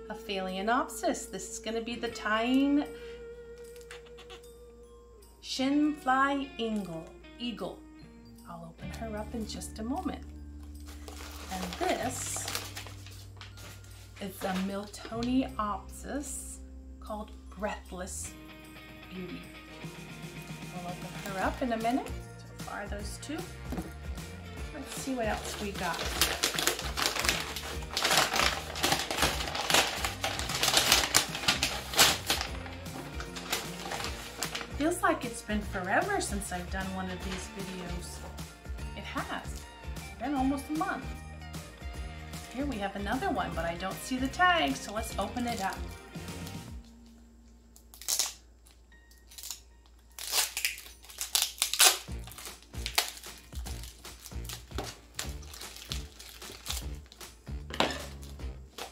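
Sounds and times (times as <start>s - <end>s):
background music: 0.0s - 58.9s
paper sleeve rustling and crinkling: 10.8s - 15.2s, 24.8s - 35.0s, 50.2s - 57.2s.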